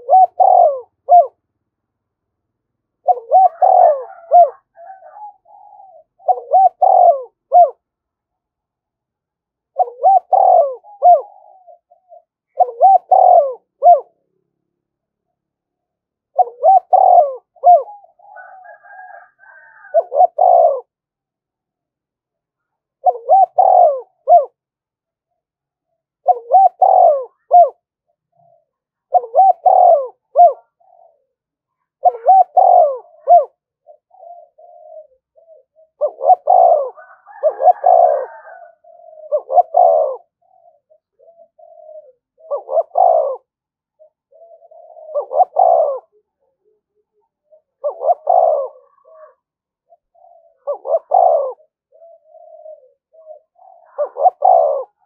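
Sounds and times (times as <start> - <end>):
dove cooing: 0.0 - 1.4, 3.0 - 7.9, 9.7 - 14.2, 16.2 - 21.0, 22.6 - 24.6, 25.3 - 55.0.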